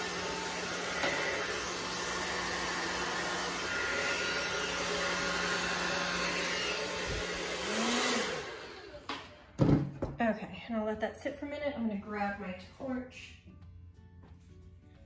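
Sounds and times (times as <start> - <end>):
hair dryer running: 0.0 - 9.4.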